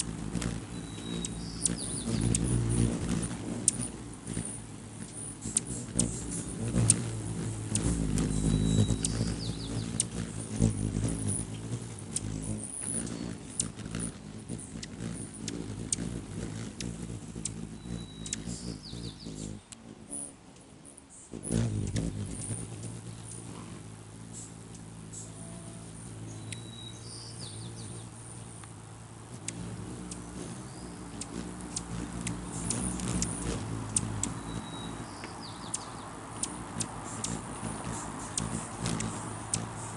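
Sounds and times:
sharp ticks: 0:00.0 - 0:19.8, 0:29.4 - 0:39.9
hummingbird wings humming: 0:00.0 - 0:39.9
squeaky bird chatter: 0:00.7 - 0:16.2, 0:16.8 - 0:20.3, 0:29.4 - 0:39.9.

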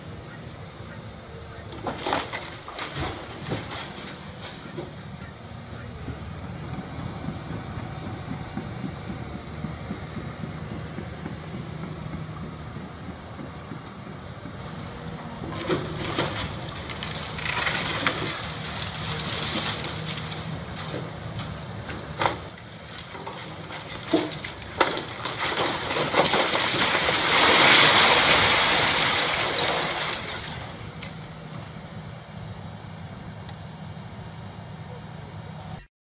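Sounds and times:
excavator diesel engine running: 0:00.0 - 0:35.9
masonry collapsing: 0:01.4 - 0:06.7, 0:14.4 - 0:31.4
cracks and thumps of breaking brick: 0:01.7 - 0:05.0, 0:15.5 - 0:30.8.

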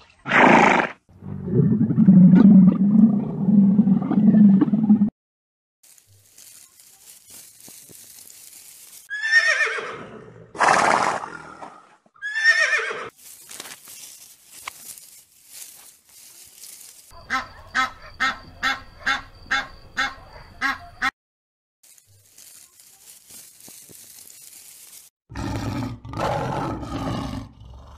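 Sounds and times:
geese honking: 0:17.2 - 0:21.1.

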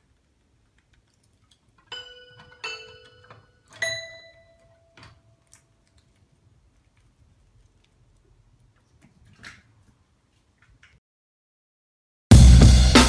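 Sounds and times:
toy piano notes: 0:01.9 - 0:05.2.

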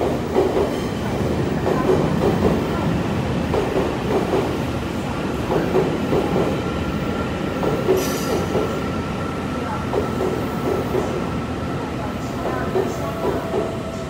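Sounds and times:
train wheels clacking on rail joints: 0:00.0 - 0:01.0, 0:05.5 - 0:06.6, 0:07.6 - 0:08.8
low train rumble: 0:00.0 - 0:14.0.

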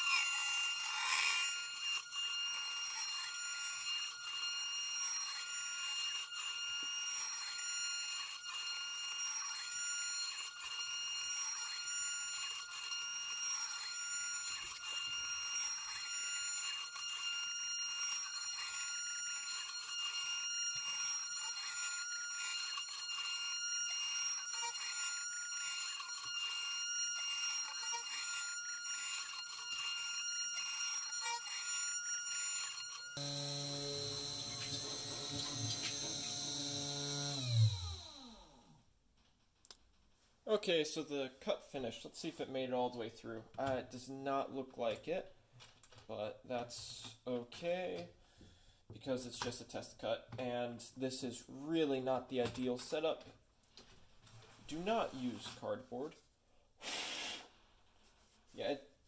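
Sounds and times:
router spindle whine cutting wood: 0:00.0 - 0:38.8.

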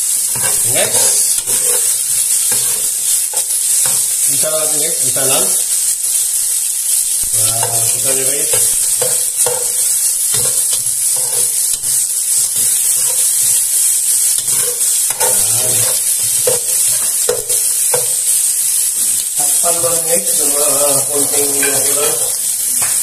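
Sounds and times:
vegetables sizzling in hot oil: 0:00.0 - 0:23.0
metal spoon scraping a pot: 0:00.3 - 0:04.2, 0:07.2 - 0:13.6, 0:14.2 - 0:18.4, 0:21.2 - 0:23.0.

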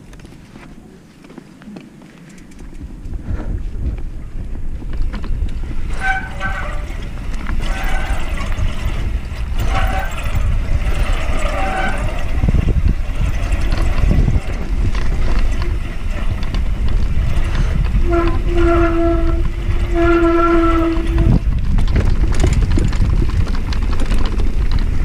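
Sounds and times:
bike tyres on dirt: 0:00.0 - 0:25.0
wind rumble on microphone: 0:00.0 - 0:25.0
disc brakes squealing: 0:05.7 - 0:21.5.

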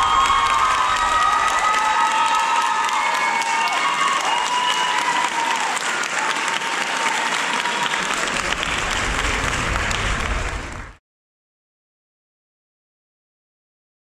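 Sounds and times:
high cheering voices: 0:00.0 - 0:10.4
audience applauding: 0:00.0 - 0:11.0.

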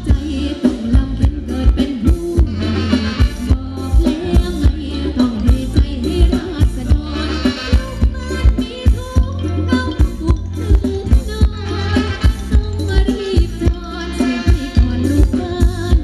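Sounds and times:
live band playing dance music: 0:00.0 - 0:16.0
person singing: 0:00.0 - 0:16.0
steady drum beat: 0:00.0 - 0:16.0.

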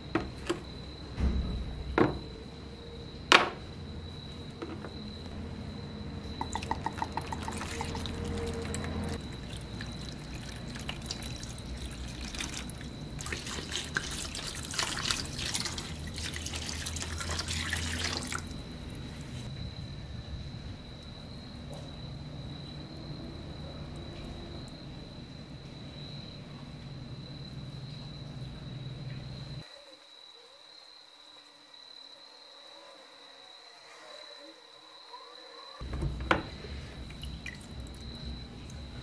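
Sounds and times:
liquid trickling and splashing: 0:06.3 - 0:19.5, 0:36.5 - 0:38.9.

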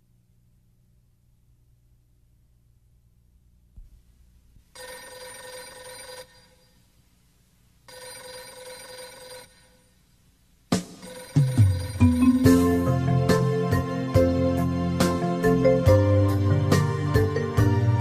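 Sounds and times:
telephone ringing: 0:04.8 - 0:06.8, 0:07.9 - 0:09.9, 0:11.0 - 0:12.9.

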